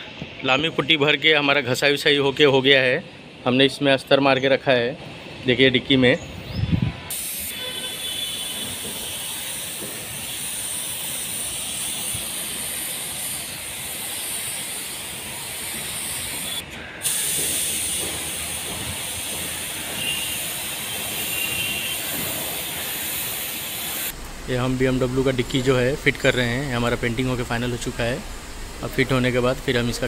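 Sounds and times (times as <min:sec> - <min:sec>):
paint spray gun hissing: 0:07.1 - 0:29.9.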